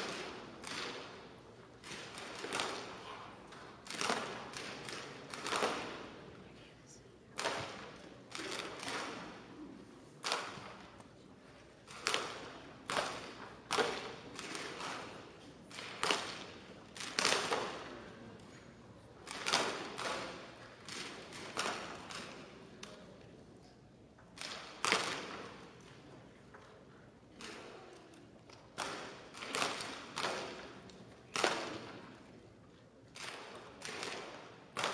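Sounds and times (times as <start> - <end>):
bb gun shots echoing: 0.0 - 6.4, 7.4 - 11.0, 11.8 - 18.0.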